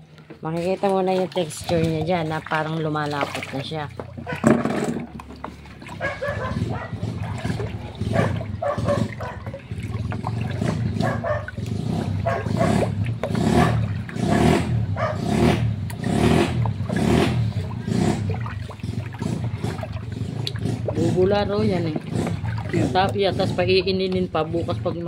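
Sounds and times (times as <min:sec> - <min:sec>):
paddle stirring liquid in bucket: 0:00.0 - 0:25.0
liquid pouring: 0:01.3 - 0:12.3.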